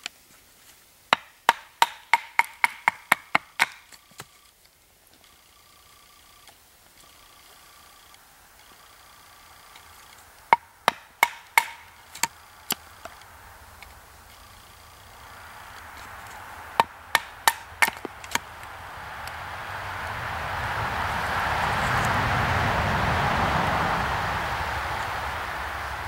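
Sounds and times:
knife chopping kindling: 10.6 - 12.3, 16.8 - 18.4.

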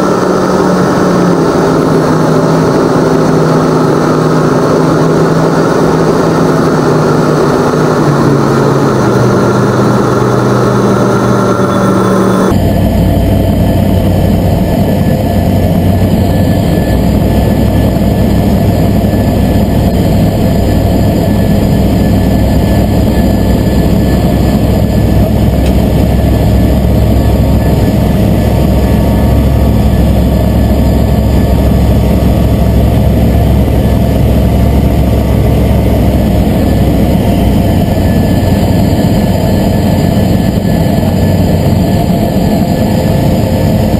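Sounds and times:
aircraft engine and propeller: 0.0 - 43.9.

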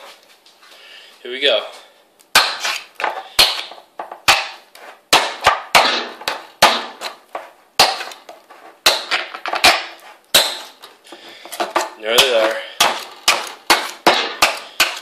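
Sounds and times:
knife stabbing tin can lid: 2.4 - 3.7.

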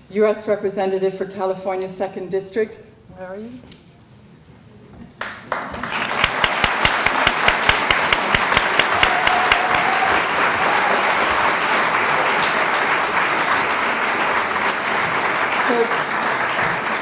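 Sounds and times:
close sharp claps: 5.2 - 17.0
large audience applauding: 5.2 - 17.0.

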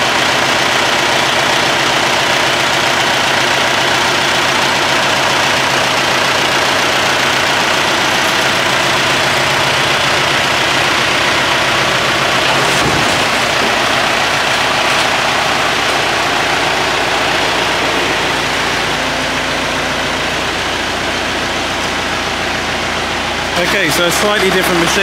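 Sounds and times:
tractor engine running: 0.0 - 25.0
tractor bump: 0.2 - 25.0.

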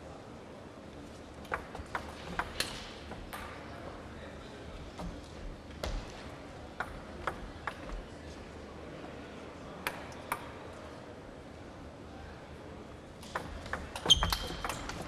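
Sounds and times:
steady hall hum: 0.0 - 15.0
table tennis ball bouncing: 1.4 - 3.6, 5.0 - 8.1, 13.2 - 15.0.

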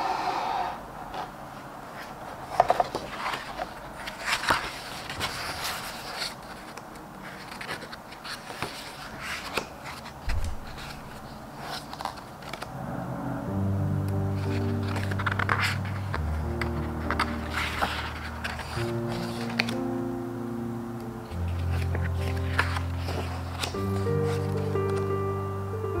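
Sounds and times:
book pages turning: 2.0 - 12.7, 14.1 - 20.1, 21.0 - 25.3
music with held notes: 13.0 - 26.0.

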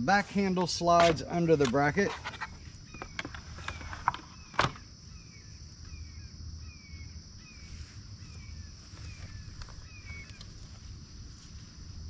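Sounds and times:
bird chirping: 1.4 - 10.7.

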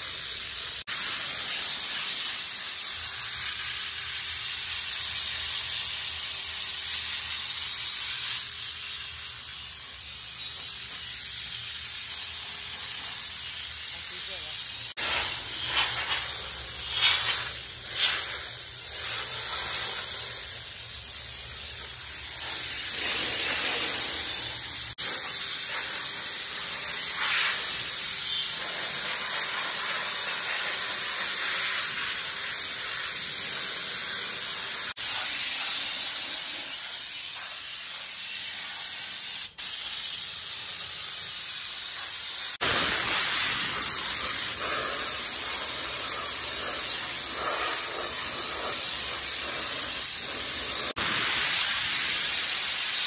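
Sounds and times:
steam cleaner hissing: 0.0 - 53.0.

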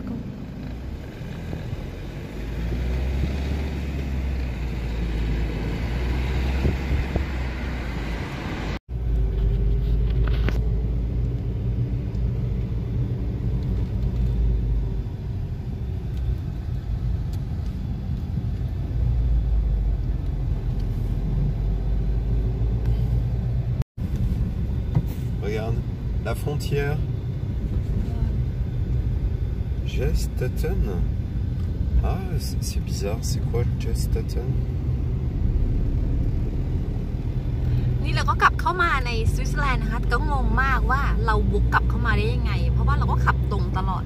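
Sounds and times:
car engine rumble: 0.0 - 44.0
tyres on road: 0.0 - 44.0.

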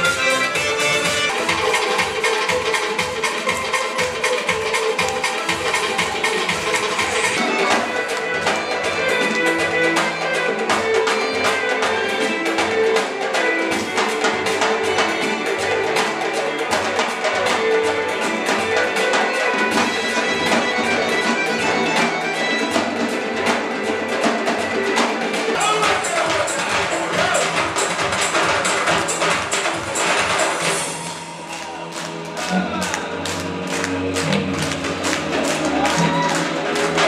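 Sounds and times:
held melody line: 0.0 - 10.6
frame drums beaten fast: 0.0 - 37.0.

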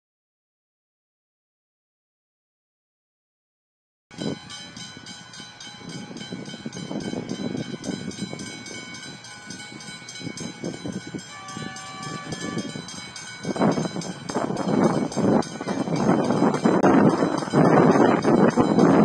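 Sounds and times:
wind on the microphone: 4.1 - 19.0
level-crossing bells ringing: 4.2 - 19.0
train horn: 11.2 - 13.1.

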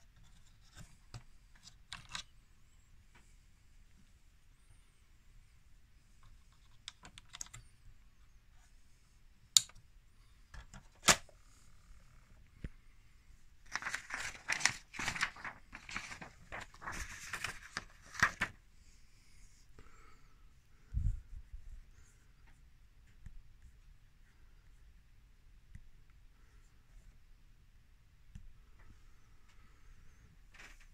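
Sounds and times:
plastic clicks and snaps: 9.5 - 9.8
paper rustling and crinkling: 13.6 - 18.6.

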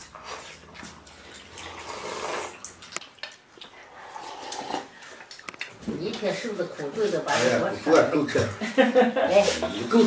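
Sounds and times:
people slurping broth: 0.0 - 2.9, 3.6 - 5.8.

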